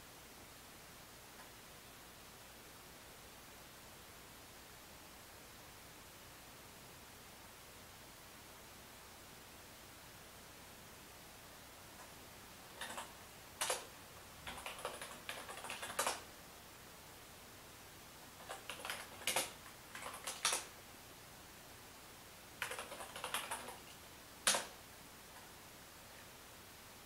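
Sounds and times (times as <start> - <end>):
computer keyboard typing: 12.7 - 16.3, 18.4 - 20.8, 22.6 - 24.8.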